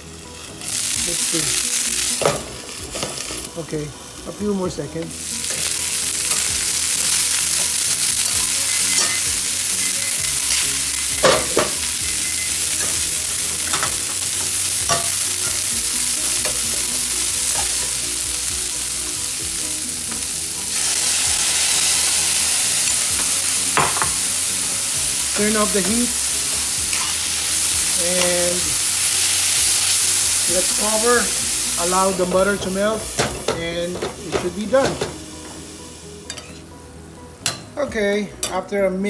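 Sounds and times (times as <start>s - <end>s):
vegetables sizzling in oil: 0.0s - 36.7s
metal spoon scraping pan: 26.9s - 27.3s.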